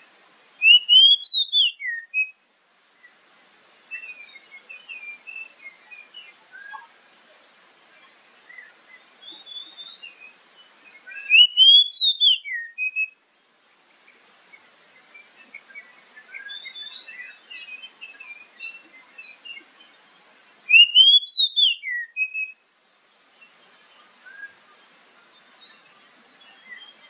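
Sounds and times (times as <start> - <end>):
bird whistled song: 0.6 - 2.4, 3.9 - 6.9, 8.5 - 13.2, 15.1 - 19.7, 20.7 - 22.6, 24.2 - 24.6, 25.6 - 27.0
bird quiet warbling: 6.5 - 7.0.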